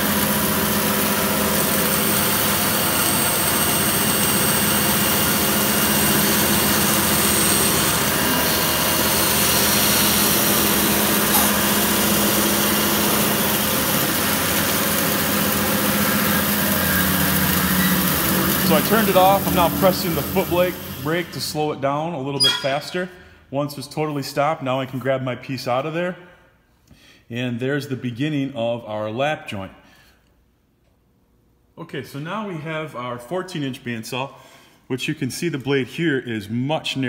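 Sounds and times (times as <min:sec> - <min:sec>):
bandsaw cutting wood: 0:00.0 - 0:21.4.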